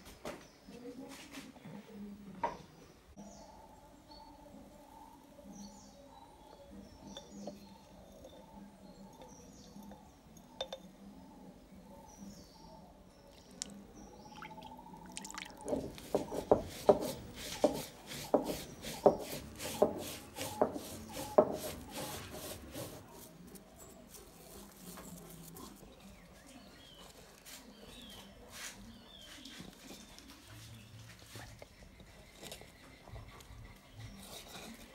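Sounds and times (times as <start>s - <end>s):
stone roller grinding on stone: 15.7s - 23.2s.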